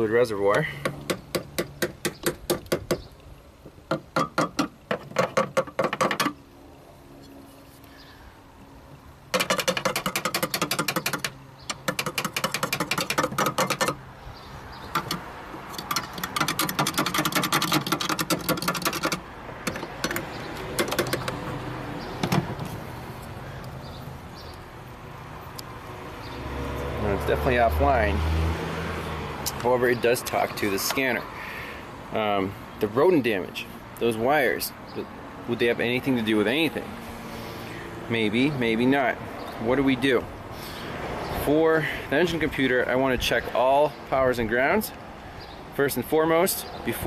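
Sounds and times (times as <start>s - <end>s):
rapid tapping on engine computer: 9.3s - 14.0s.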